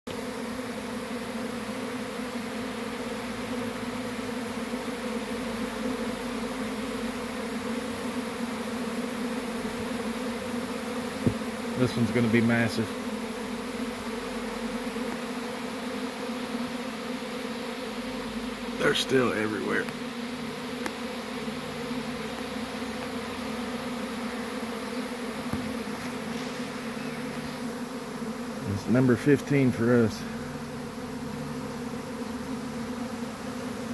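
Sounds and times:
bee swarm buzzing: 0:00.1 - 0:33.9.

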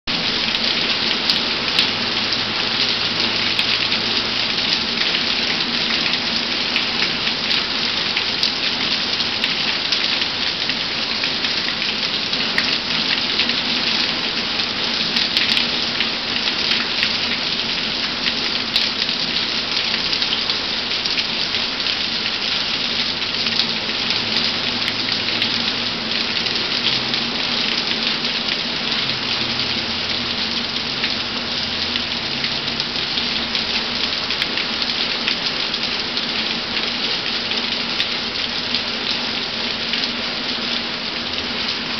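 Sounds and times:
steady rain falling: 0:00.1 - 0:41.9.

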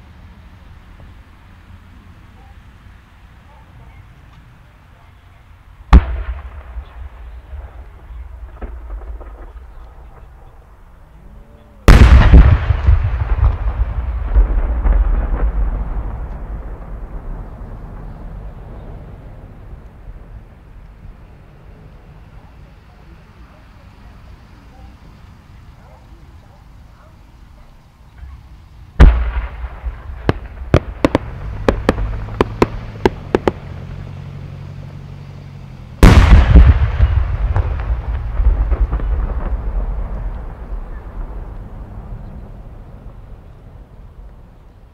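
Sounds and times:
sharp firework pops: 0:05.9 - 0:10.6, 0:11.9 - 0:19.0, 0:29.0 - 0:34.2, 0:36.0 - 0:41.7
rolling echo: 0:05.9 - 0:11.3, 0:11.9 - 0:23.6, 0:29.0 - 0:44.9.

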